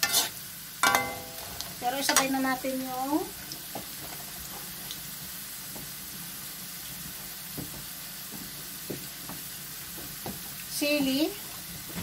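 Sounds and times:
vegetables sizzling in oil: 0.0s - 12.0s
faint oil crackles: 1.5s - 6.2s.

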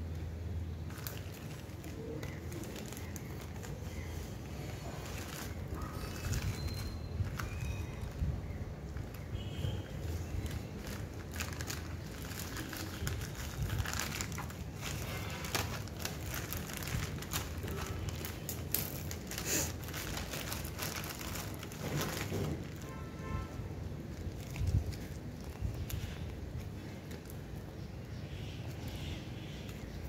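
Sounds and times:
plastic crinkling: 0.0s - 30.0s
scissors snipping plastic bag: 10.0s - 22.9s.

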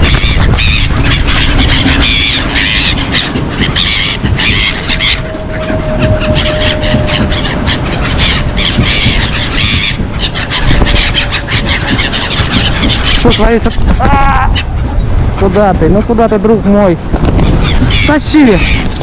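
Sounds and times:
constant low rumble: 0.0s - 19.0s
gulls screeching: 0.0s - 19.0s.

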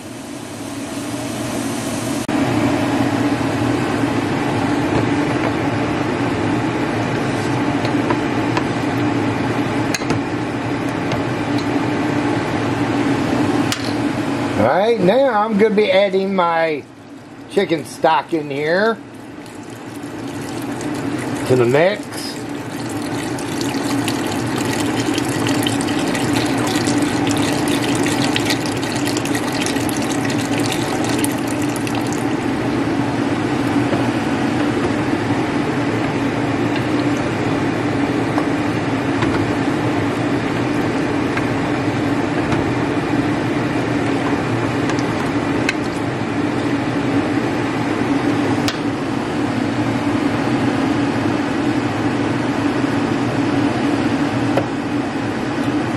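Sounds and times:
steady low hum: 11.5s - 49.7s
calm liquid noise: 19.0s - 32.6s
stock pouring and splashing into pot: 19.2s - 32.4s.

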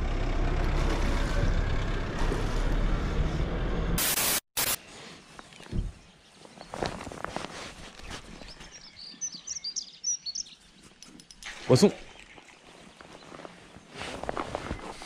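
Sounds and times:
static hiss: 4.0s - 4.8s.

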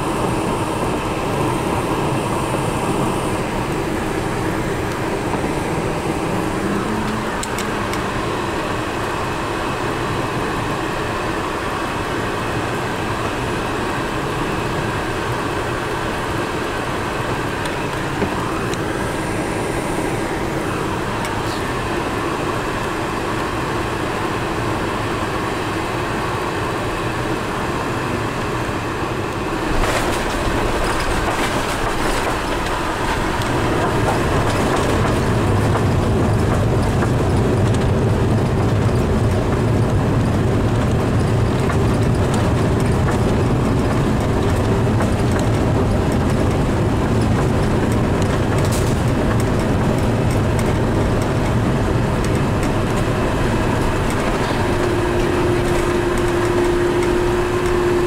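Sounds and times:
aircraft engine hum: 0.0s - 58.0s
rolling rumble: 29.4s - 58.0s.

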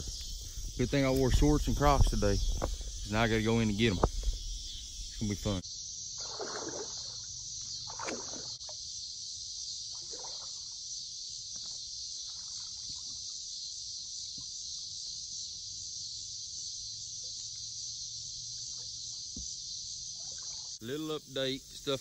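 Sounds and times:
insects chorus: 0.0s - 22.0s
water sloshing and splashing: 6.2s - 8.7s, 9.9s - 10.8s.

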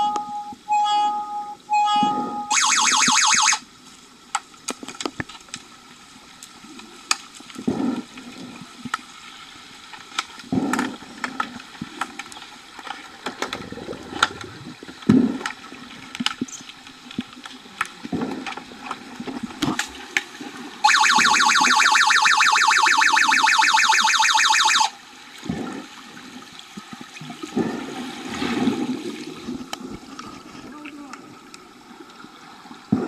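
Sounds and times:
electronic signal tone: 0.0s - 3.6s, 20.8s - 24.9s
underwater whooshing of water and bubbles: 3.7s - 20.9s, 25.0s - 33.0s
sticks and puck clicking underwater: 4.3s - 5.7s, 9.9s - 20.3s.

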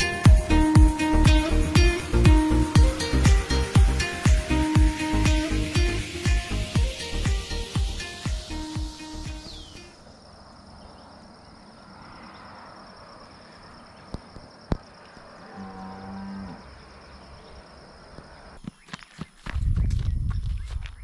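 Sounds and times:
cow mooing: 15.4s - 16.7s.

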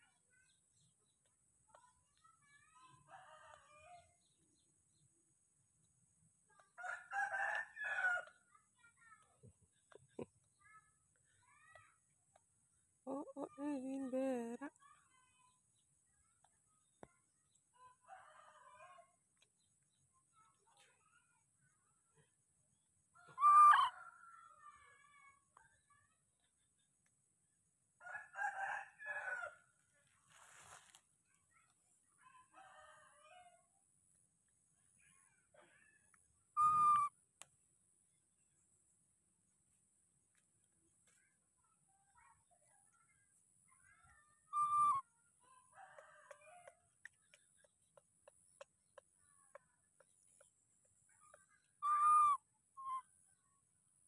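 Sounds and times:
faint bird call: 23.2s - 24.8s, 35.7s - 37.2s, 44.5s - 45.1s, 51.2s - 53.1s.

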